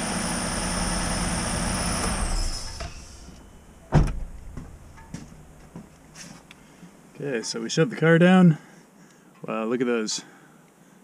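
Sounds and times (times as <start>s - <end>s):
sharp thump: 2.3s - 5.9s.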